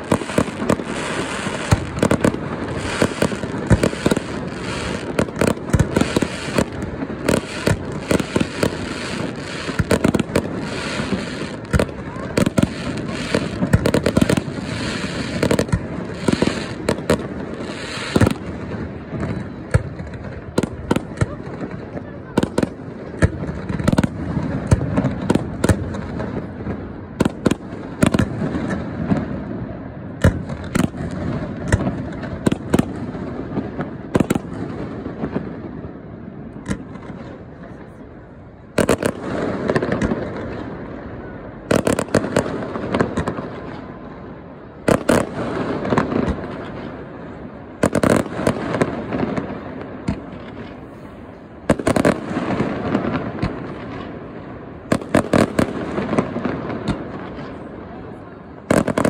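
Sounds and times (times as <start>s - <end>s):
small firework pops: 0.0s - 35.6s, 36.5s - 38.0s, 38.7s - 41.0s, 41.7s - 43.9s, 44.8s - 47.0s, 47.8s - 54.2s, 54.9s - 57.8s, 58.6s - 59.0s
fireworks bangs: 0.0s - 59.0s.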